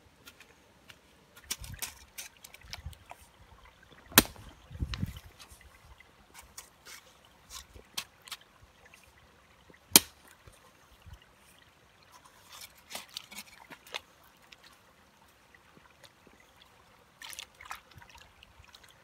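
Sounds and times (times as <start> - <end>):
faint trickling water: 0.0 - 19.0
hoe chopping wet mud: 4.1 - 4.5, 9.9 - 10.2.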